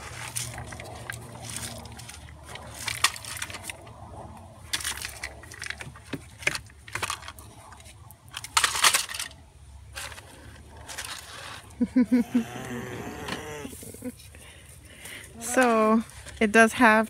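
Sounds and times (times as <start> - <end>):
pebbles rattling and crunching: 0.0 - 3.8, 4.6 - 11.8.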